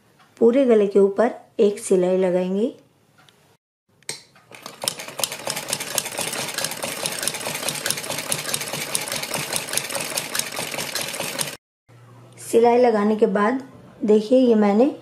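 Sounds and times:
sewing machine stitching: 0:04.5 - 0:11.6.

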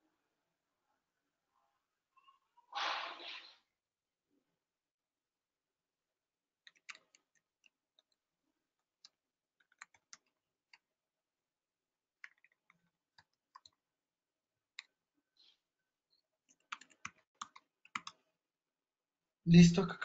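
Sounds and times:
faint keyboard typing: 0:06.6 - 0:08.2, 0:08.8 - 0:10.9, 0:12.2 - 0:13.9, 0:14.7 - 0:15.0, 0:16.4 - 0:18.3.

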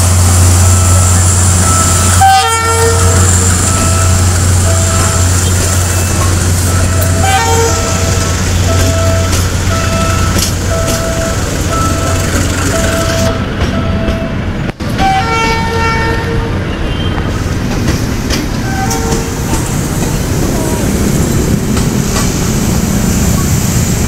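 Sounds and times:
train rumbling on track: 0:00.0 - 0:24.0.

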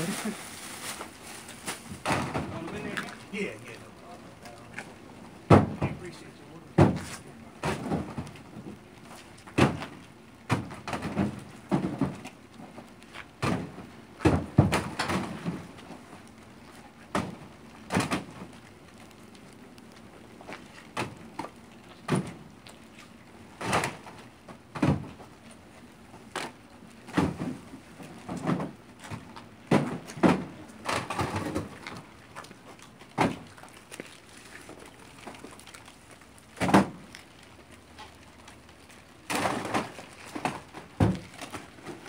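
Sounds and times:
boxes thumping into truck bed: 0:01.7 - 0:03.0, 0:05.5 - 0:06.0, 0:06.8 - 0:08.7, 0:09.5 - 0:12.8, 0:13.4 - 0:16.1, 0:17.1 - 0:18.5, 0:23.6 - 0:25.3, 0:26.4 - 0:32.0, 0:33.2 - 0:33.5, 0:36.6 - 0:37.0, 0:39.2 - 0:42.0.

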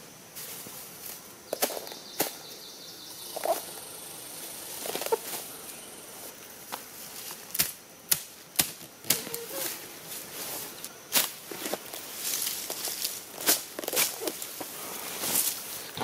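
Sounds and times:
grass stems rustling: 0:04.7 - 0:16.0.

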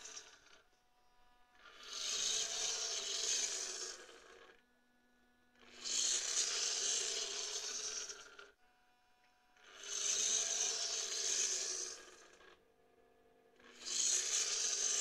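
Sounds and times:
servos whirring and grinding: 0:00.0 - 0:00.6, 0:01.6 - 0:04.6, 0:05.6 - 0:08.6, 0:09.6 - 0:12.6, 0:13.6 - 0:15.0.

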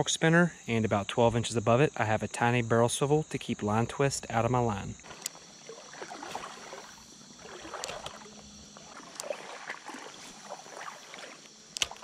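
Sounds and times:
thin high whine: 0:00.0 - 0:12.0
soft water flowing: 0:05.0 - 0:12.0
small clicks: 0:07.8 - 0:09.3, 0:11.4 - 0:12.0
sharp click: 0:11.7 - 0:12.0.

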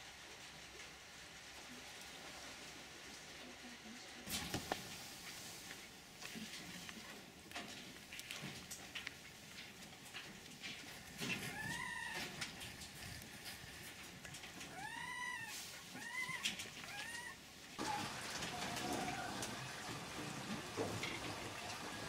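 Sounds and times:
fox whining: 0:11.4 - 0:13.1, 0:14.6 - 0:19.4.

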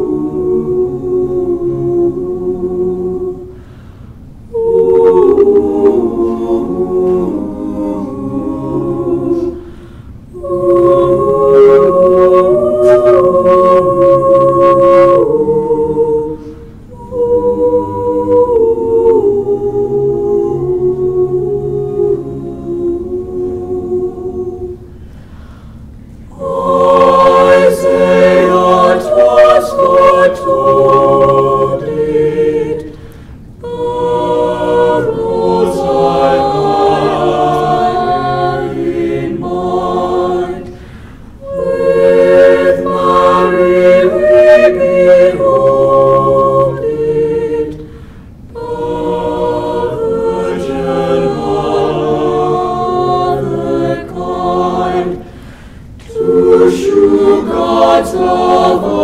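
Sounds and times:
choir breathing: 0:00.0 - 0:59.0
choir singing a cappella: 0:00.0 - 0:59.0.

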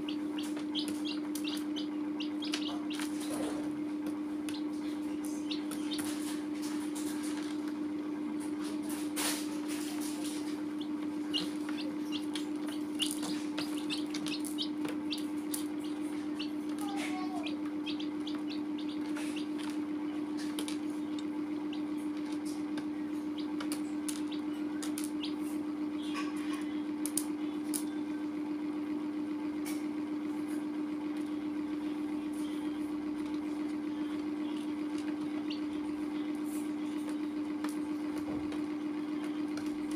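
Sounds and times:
chicks peeping: 0:00.0 - 0:27.9, 0:32.3 - 0:37.0
chicks pecking plastic: 0:00.0 - 0:28.2, 0:29.6 - 0:39.9.

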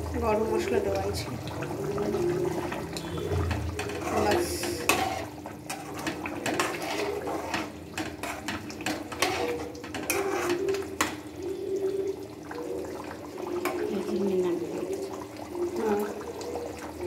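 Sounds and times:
metal ladle scraping pan: 0:01.6 - 0:11.2.

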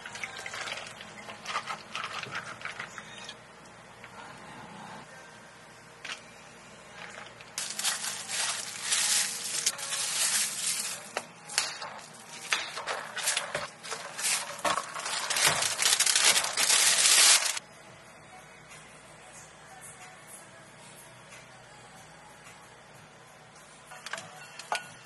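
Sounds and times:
plastic film crinkling: 0:07.6 - 0:17.6.

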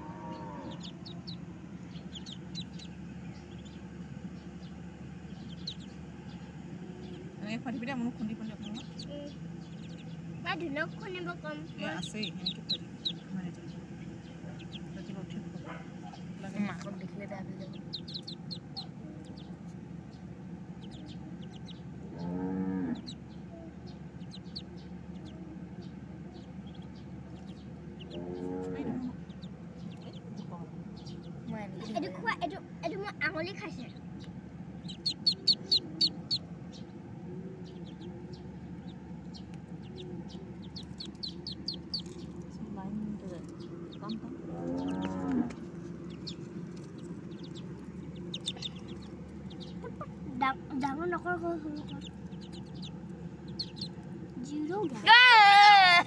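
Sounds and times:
ducklings peeping: 0:00.0 - 0:56.0
low background hum: 0:00.0 - 0:56.0.

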